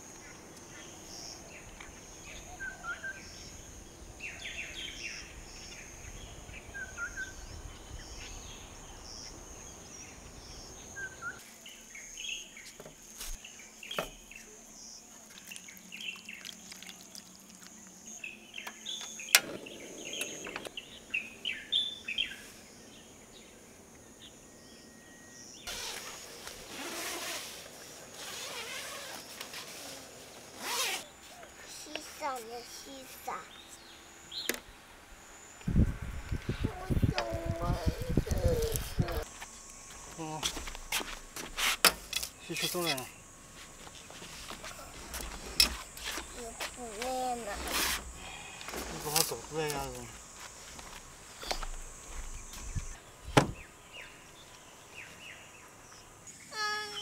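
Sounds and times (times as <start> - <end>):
birds chirping: 0.0 - 26.4, 30.6 - 41.4, 42.1 - 57.0
high insect drone: 0.0 - 57.0
rustling noise: 25.7 - 31.4, 37.7 - 42.1, 43.5 - 53.0.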